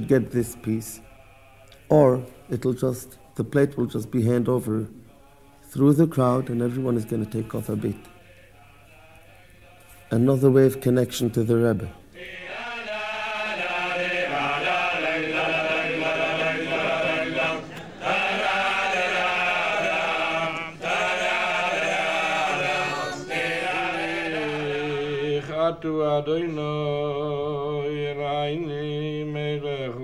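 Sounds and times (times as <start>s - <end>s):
men singing together: 12.0s - 30.0s.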